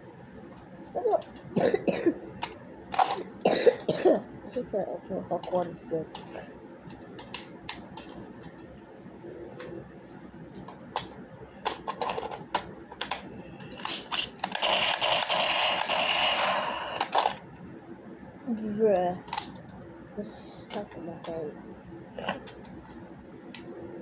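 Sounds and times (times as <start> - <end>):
plastic toy blaster clicking and rattling: 11.7 - 17.4.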